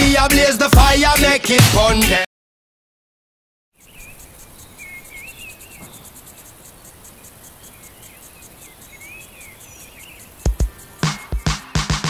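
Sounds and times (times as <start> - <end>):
bird singing warbling phrases: 3.8 - 11.8
insect chirping: 3.8 - 11.9.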